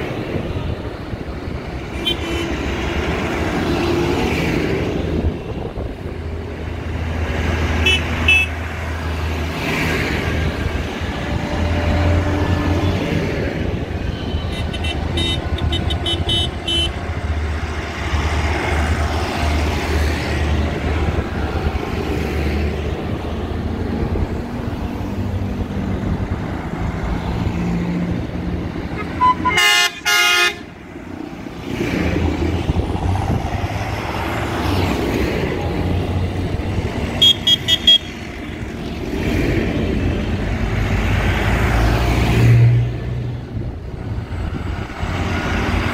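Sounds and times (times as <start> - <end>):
tractor diesel engines droning: 0.0 - 45.9
horns tooting: 1.8 - 3.2, 7.8 - 8.6, 11.1 - 17.1, 28.9 - 30.8, 37.0 - 38.6.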